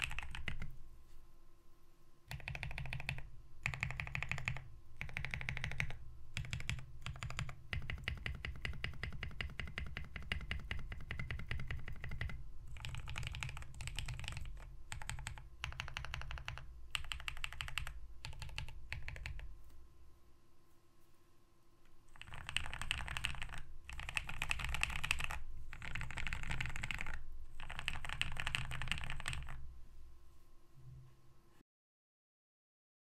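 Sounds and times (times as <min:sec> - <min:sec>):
mechanical keyboard typing: 0:00.0 - 0:00.8, 0:02.3 - 0:19.5, 0:22.1 - 0:29.6.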